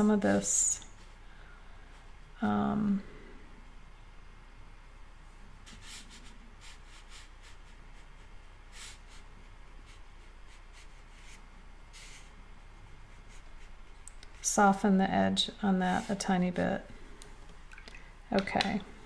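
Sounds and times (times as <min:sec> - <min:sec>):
brush stroking on paper: 0:05.6 - 0:14.6, 0:15.8 - 0:16.4.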